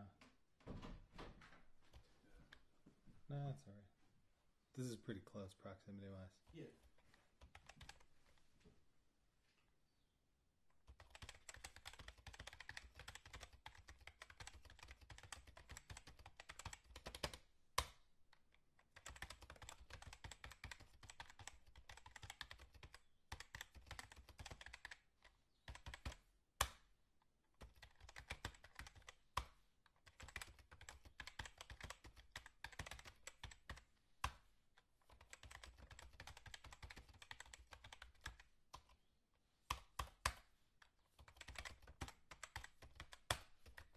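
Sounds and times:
typing on computer keyboard: 7.4s - 8.1s, 10.8s - 18.0s, 18.8s - 26.9s, 27.6s - 34.4s, 35.0s - 39.0s, 39.7s - 40.5s, 41.1s - 43.9s.

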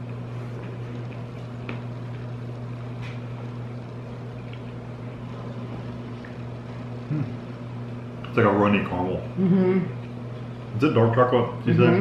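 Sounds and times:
steady low hum: 0.0s - 12.0s
chewing clicks: 3.9s - 4.8s.

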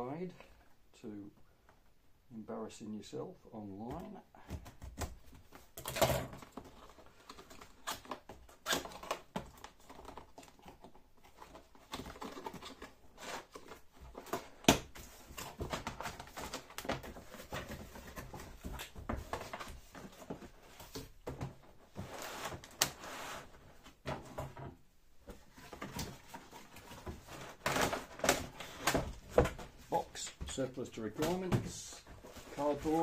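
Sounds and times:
packing tape cut and peeled: 7.2s - 14.8s
cardboard scrapes and rustles: 21.9s - 24.0s, 32.1s - 33.0s.

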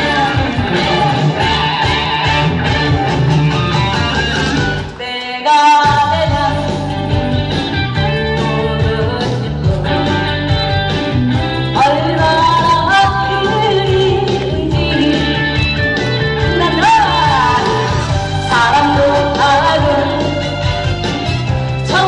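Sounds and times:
woman singing into microphone: 0.0s - 1.8s, 4.9s - 10.8s, 11.6s - 15.8s, 16.4s - 20.6s
upbeat backing track with drums: 0.0s - 22.0s.

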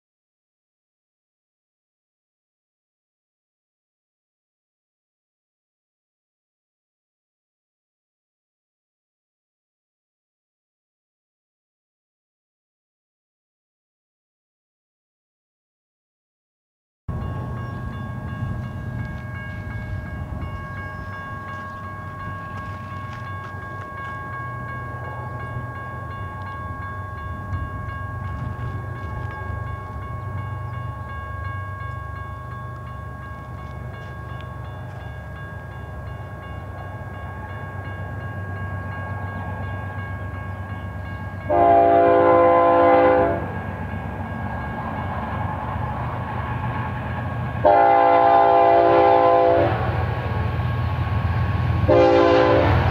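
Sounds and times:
crossing bell ringing: 17.1s - 51.2s
train low rumble: 17.1s - 52.9s
locomotive horn blast: 41.5s - 43.6s, 47.6s - 50.3s, 51.9s - 52.9s.

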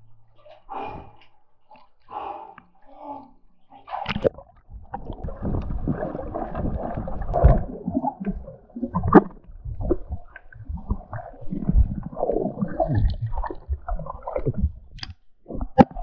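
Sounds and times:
water splash: 4.0s - 16.0s
bubbles underwater: 4.1s - 16.0s
underwater rumble of moving water: 4.3s - 16.0s.

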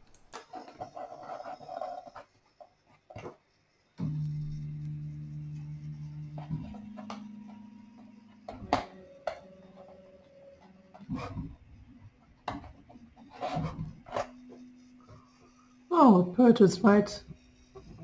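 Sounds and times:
stepper motors humming: 4.0s - 18.0s.

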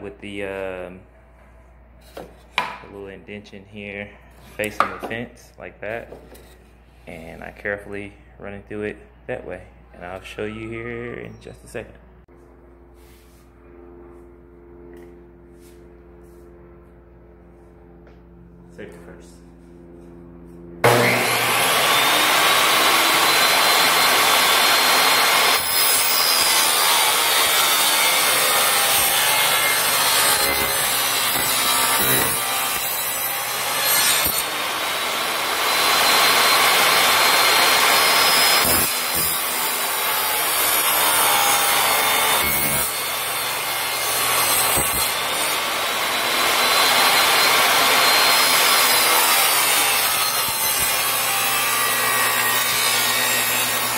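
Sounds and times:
table saw cutting wood: 20.8s - 53.9s.

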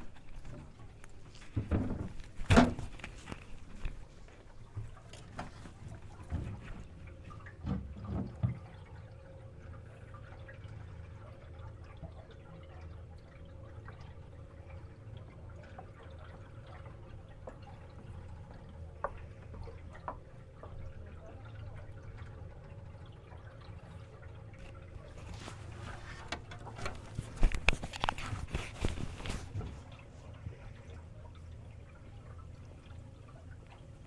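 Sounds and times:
small water splashes: 0.0s - 34.0s
water lapping against boat: 0.0s - 34.0s
knocks on boat: 1.5s - 2.9s.

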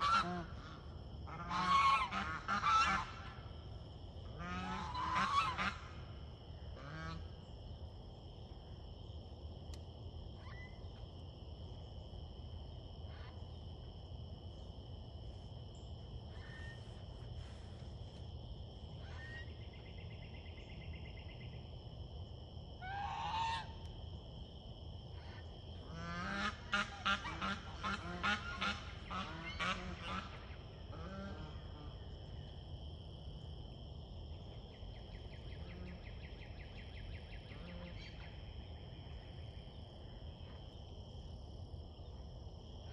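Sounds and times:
goose honking: 0.0s - 3.3s, 4.4s - 5.9s, 22.8s - 23.7s, 25.3s - 31.9s.

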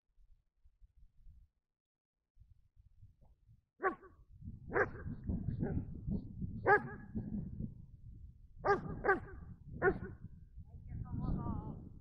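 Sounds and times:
dog barking: 3.8s - 4.1s, 4.7s - 5.8s, 6.6s - 7.0s, 8.6s - 10.2s.

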